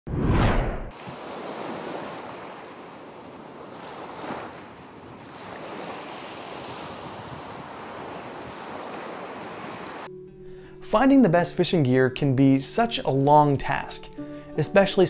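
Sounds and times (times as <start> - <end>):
ocean waves washing: 0.4 - 10.1.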